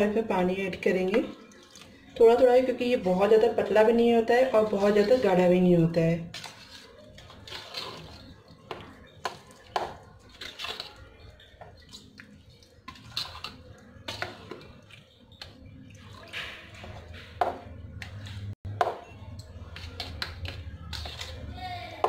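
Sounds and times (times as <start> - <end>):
spoon beating batter in bowl: 3.3 - 5.7, 6.3 - 22.0.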